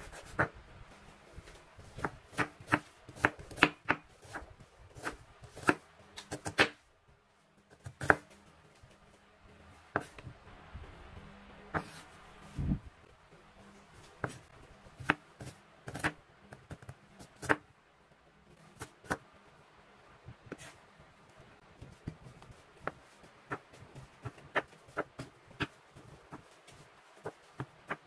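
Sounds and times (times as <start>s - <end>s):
knife chopping on cutting board: 2.0s - 6.8s, 7.8s - 8.2s.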